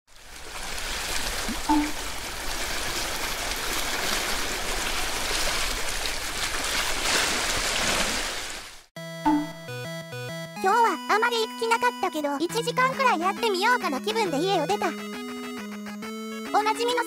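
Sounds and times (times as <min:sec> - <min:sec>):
rushing water: 0:00.1 - 0:08.9.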